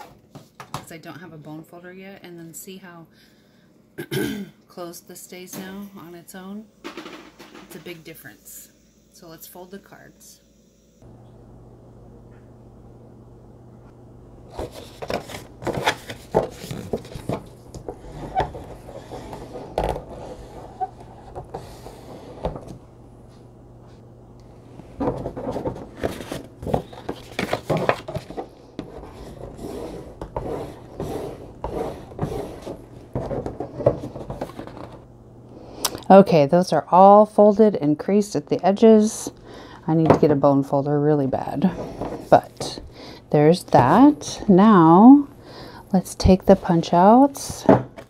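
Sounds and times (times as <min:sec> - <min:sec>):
tool scraping and rubbing card: 0:14.5 - 0:22.5, 0:25.4 - 0:34.9.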